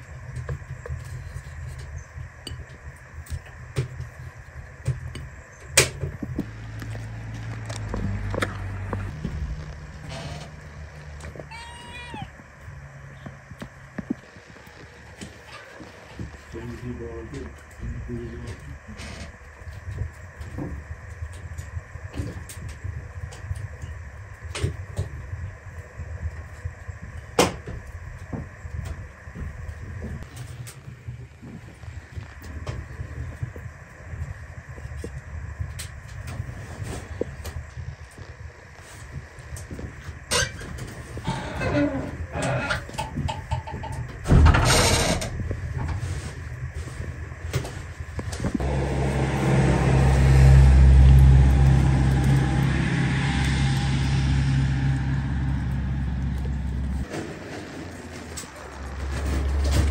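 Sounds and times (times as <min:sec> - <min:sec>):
low rumble: 0:00.0 - 0:15.2, 0:15.8 - 0:59.9
steady low hum: 0:00.0 - 0:59.9.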